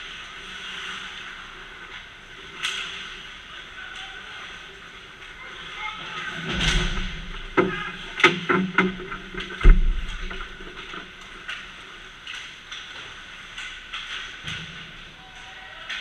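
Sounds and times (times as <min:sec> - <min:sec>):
heavy thump: 0:06.5 - 0:11.1.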